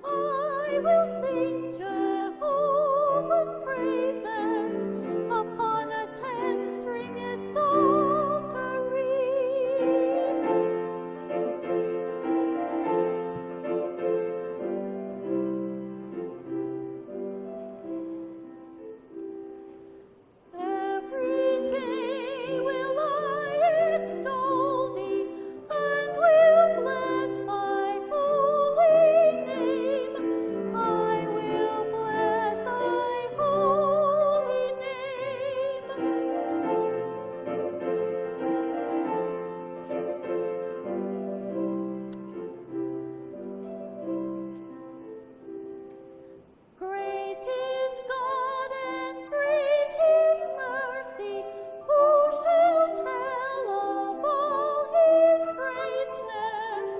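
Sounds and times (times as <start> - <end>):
woman singing with vibrato: 0.0 - 10.8, 20.5 - 36.8, 46.8 - 56.9
piano: 0.0 - 56.9.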